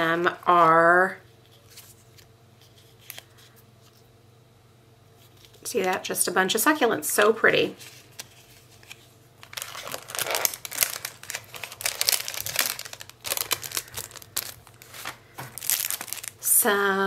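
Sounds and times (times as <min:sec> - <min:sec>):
stickers rustling and crinkling: 0:07.6 - 0:16.7.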